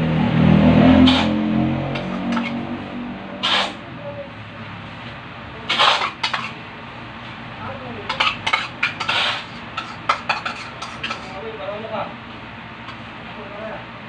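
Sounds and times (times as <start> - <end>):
metal spoon scraping a bowl: 1.0 - 1.4, 2.0 - 2.7, 3.4 - 3.8, 5.7 - 6.6, 8.1 - 11.4.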